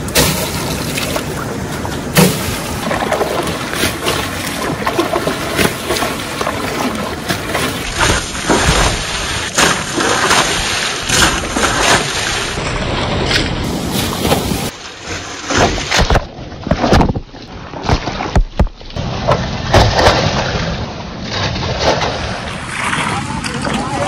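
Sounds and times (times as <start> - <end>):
water splashing on metal: 0.0 - 17.2
moving water: 0.0 - 24.0.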